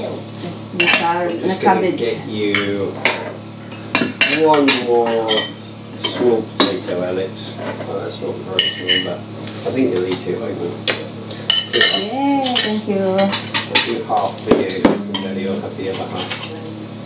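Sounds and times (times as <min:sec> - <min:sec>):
cutlery clinking on plates: 0:10.9 - 0:16.6.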